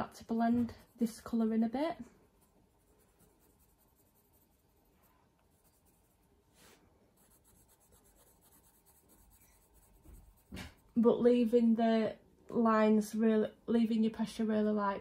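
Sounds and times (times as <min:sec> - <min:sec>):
pencil scratching on paper: 0:00.2 - 0:11.0.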